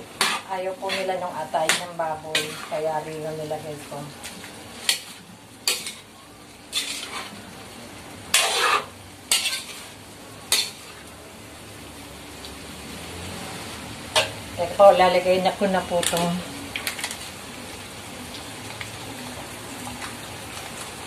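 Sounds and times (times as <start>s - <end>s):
ladle scraping metal wok: 0.0s - 3.0s, 4.4s - 6.1s, 6.7s - 7.4s, 8.3s - 11.0s
food sizzling: 0.0s - 21.0s.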